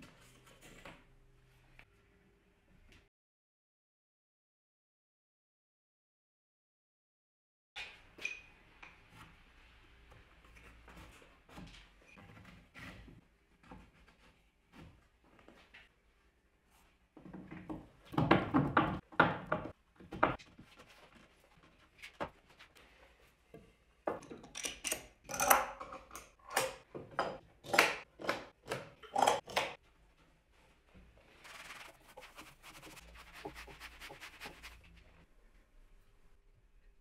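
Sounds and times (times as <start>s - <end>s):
wood and metal knocks and clanks: 17.2s - 20.7s, 23.6s - 29.8s
sponge rubbing wood: 31.3s - 35.2s.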